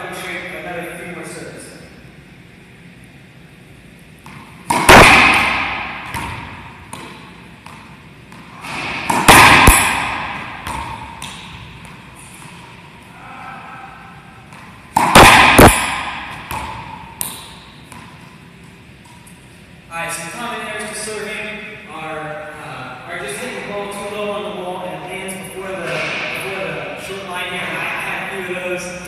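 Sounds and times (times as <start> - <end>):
ball slapping wall: 4.2 - 12.7, 14.4 - 18.2
racquet cracking ball: 4.2 - 12.9, 14.4 - 18.4.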